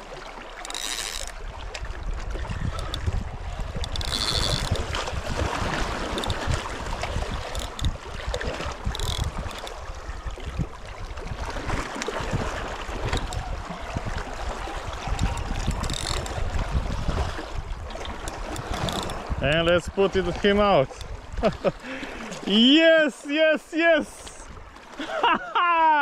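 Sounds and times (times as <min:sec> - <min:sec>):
water sloshing against rocks: 0:00.0 - 0:25.2
fishing reel cranking: 0:00.5 - 0:01.4, 0:02.7 - 0:03.1, 0:03.7 - 0:05.2, 0:06.0 - 0:09.9, 0:13.0 - 0:13.7, 0:15.0 - 0:16.5, 0:18.1 - 0:19.3
wind buffeting microphone: 0:01.3 - 0:21.7.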